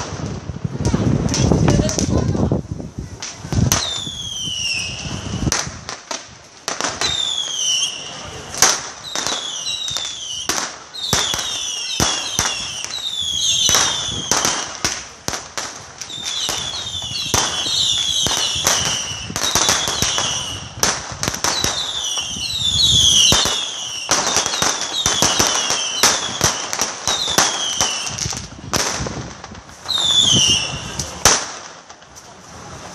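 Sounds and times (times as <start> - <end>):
firework bangs and crackling pops: 0.0 - 32.9
falling firework whistles: 3.5 - 5.8, 6.8 - 14.8, 16.0 - 29.0, 29.6 - 31.5.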